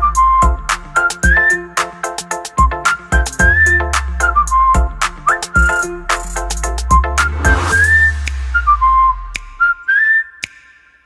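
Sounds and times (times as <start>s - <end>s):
high sliding whistle-like melody: 0.0s - 11.0s
music with steady beat: 0.0s - 11.0s.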